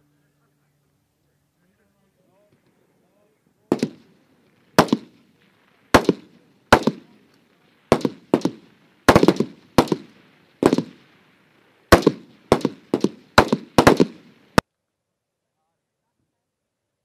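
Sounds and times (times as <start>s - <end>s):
rifle shots echoing: 3.7s - 7.2s, 7.8s - 11.2s, 11.9s - 14.6s.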